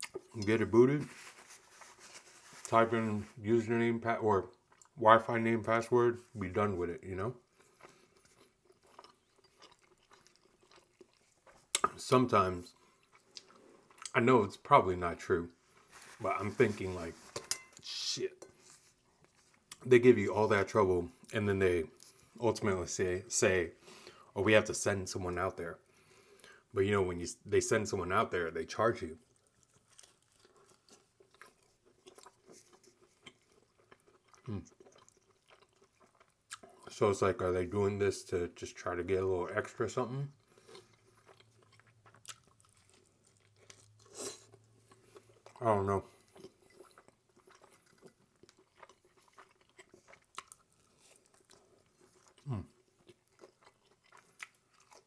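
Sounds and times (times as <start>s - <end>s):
chewing with mouth clicks: 4.5s - 5.0s, 7.4s - 12.1s, 12.7s - 14.2s, 29.2s - 37.0s, 40.3s - 55.0s.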